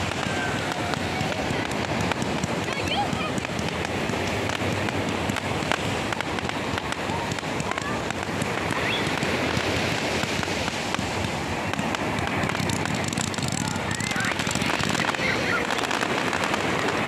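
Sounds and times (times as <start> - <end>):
fireworks crackling: 0.0 - 17.0
rising rocket whistles: 8.6 - 9.7.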